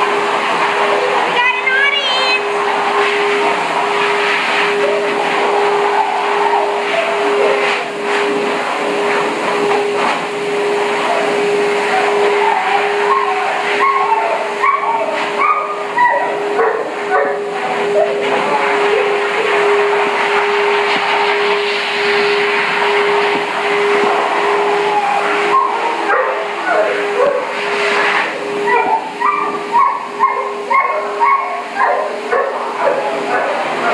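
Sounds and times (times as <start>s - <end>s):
pet grooming blower running: 0.0s - 33.9s
dog whining: 11.0s - 18.3s, 24.7s - 33.9s.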